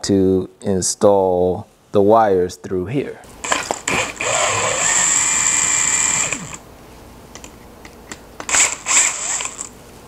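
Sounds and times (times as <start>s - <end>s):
cordless drill running: 3.4s - 6.6s, 8.5s - 9.7s.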